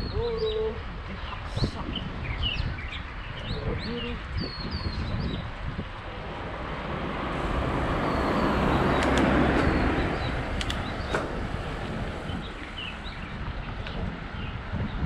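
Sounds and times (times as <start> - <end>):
vehicle passing: 6.0 - 13.3
birds chirping faintly: 6.7 - 13.7.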